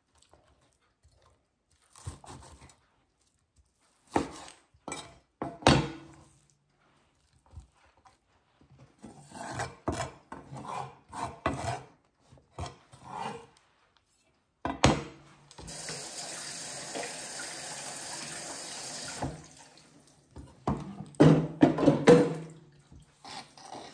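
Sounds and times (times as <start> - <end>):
kitchen tap running: 15.6 - 20.4.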